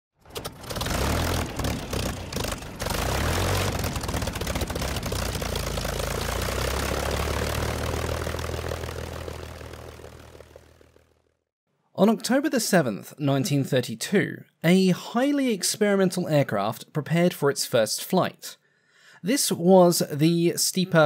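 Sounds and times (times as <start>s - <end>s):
propeller aircraft engine droning: 0.2s - 11.4s.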